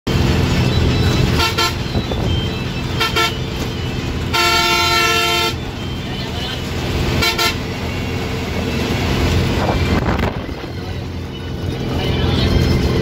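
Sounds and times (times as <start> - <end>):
bus engine low rumble: 0.1 - 13.0
bus horn toots: 1.1 - 10.3.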